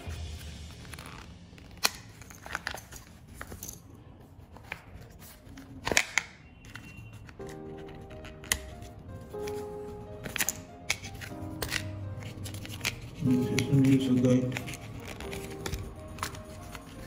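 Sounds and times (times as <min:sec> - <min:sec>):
cardboard and leather rustling: 0:06.6 - 0:17.0.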